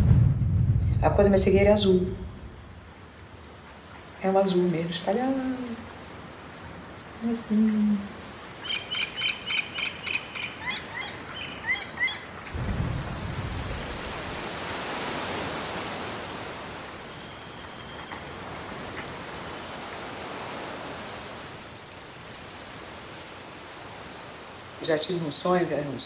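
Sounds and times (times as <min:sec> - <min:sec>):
low rumble: 0:00.0 - 0:02.9
high bird-like chirps: 0:08.6 - 0:12.2, 0:17.1 - 0:18.4.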